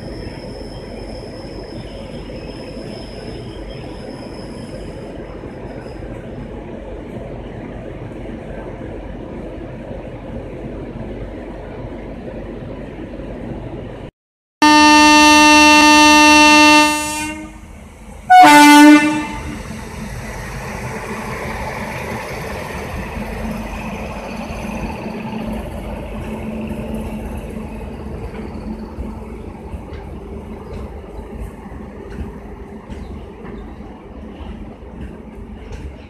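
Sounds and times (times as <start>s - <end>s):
train rumble: 0.0s - 36.0s
locomotive horn blasts: 14.6s - 17.6s, 18.3s - 19.6s.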